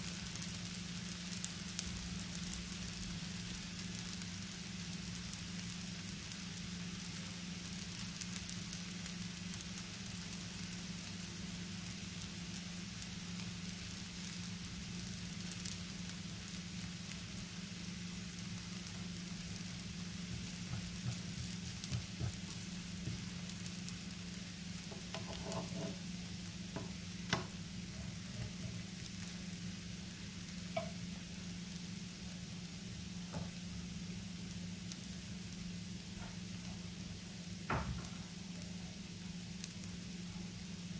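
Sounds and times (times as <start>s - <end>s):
crepe sizzling in frying pan: 0.0s - 40.9s
wooden spatula clicking and tapping: 24.8s - 26.0s, 30.7s - 31.0s.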